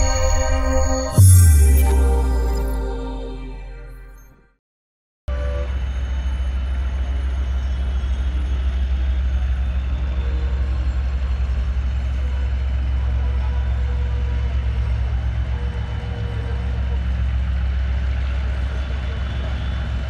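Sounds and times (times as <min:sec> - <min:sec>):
city traffic noise: 0:05.3 - 0:20.0
diesel locomotive engine rumble: 0:05.3 - 0:20.0.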